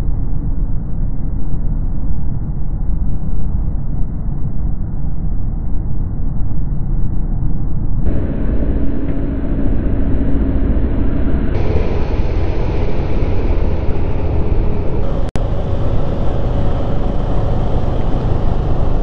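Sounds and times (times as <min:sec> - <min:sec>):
wind rush over microphone: 0:00.0 - 0:19.0
engine drone: 0:08.0 - 0:19.0.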